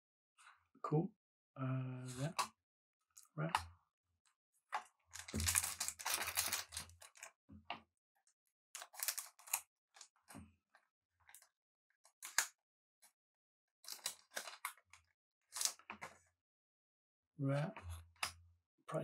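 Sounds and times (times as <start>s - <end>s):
trading cards rustling and clicking: 4.8s - 7.3s, 8.8s - 9.6s, 13.9s - 14.8s, 15.5s - 16.2s.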